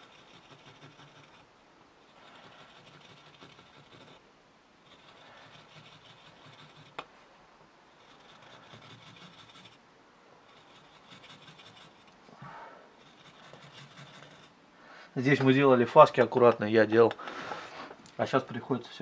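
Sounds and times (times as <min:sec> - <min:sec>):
chisel scraping wood: 0:00.0 - 0:07.1, 0:07.9 - 0:09.8, 0:10.4 - 0:12.2, 0:12.9 - 0:14.6.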